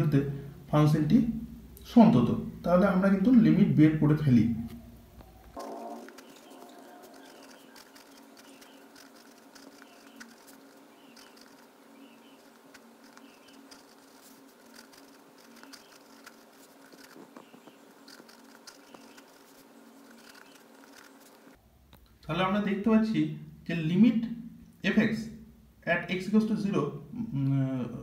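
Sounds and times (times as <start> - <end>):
steady low hum: 0.0 - 28.0
pen scratching on paper: 5.6 - 21.6.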